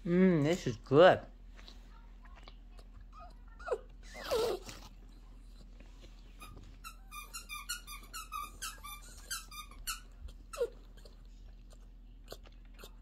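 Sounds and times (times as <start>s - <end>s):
dog whining: 3.1s - 5.0s, 6.4s - 11.4s.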